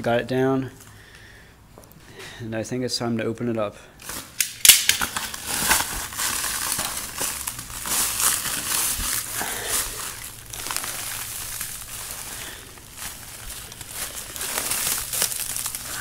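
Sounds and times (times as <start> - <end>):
plastic shrink wrap crinkling: 4.0 - 16.0
plastic snapping: 4.4 - 6.0.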